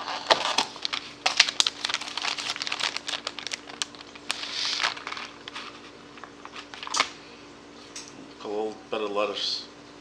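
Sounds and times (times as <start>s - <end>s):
plastic bag crinkling: 0.0s - 7.1s.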